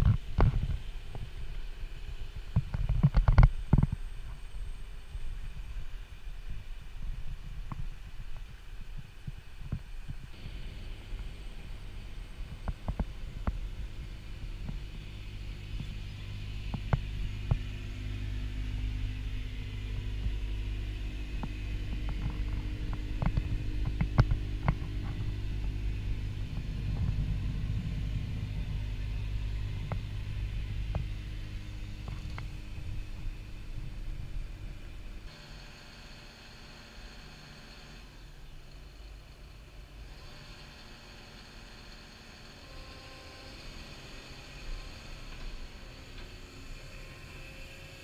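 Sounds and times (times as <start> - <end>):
excavator diesel engine idling: 10.3 - 48.0.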